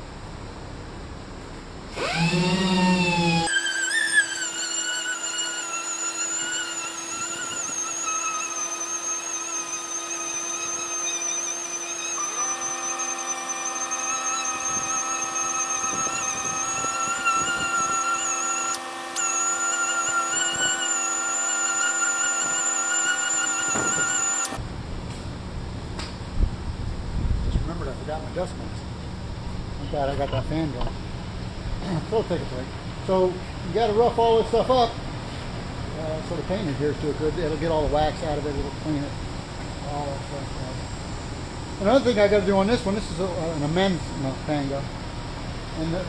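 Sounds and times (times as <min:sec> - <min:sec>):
orbital sander whining: 0:02.0 - 0:24.6.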